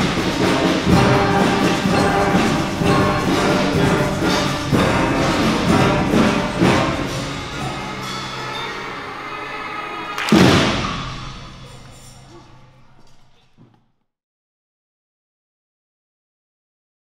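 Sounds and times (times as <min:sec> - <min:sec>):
concert band playing: 0:00.0 - 0:12.2
drum strokes: 0:00.0 - 0:12.7.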